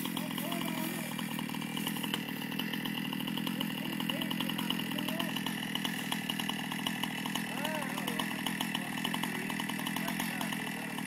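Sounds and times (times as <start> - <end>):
chainsaw engine running: 0.0 - 11.0.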